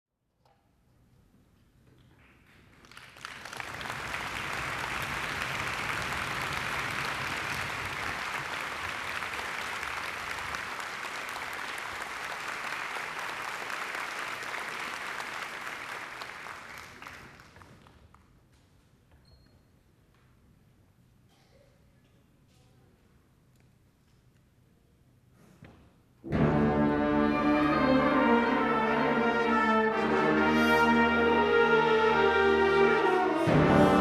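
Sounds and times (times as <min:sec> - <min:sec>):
audience applauding: 0:02.3 - 0:18.0.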